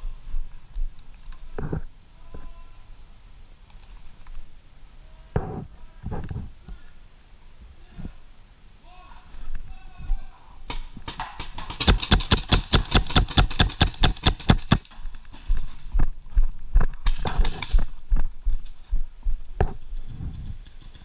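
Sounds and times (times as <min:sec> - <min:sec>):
paintball marker firing: 0:10.7 - 0:15.0.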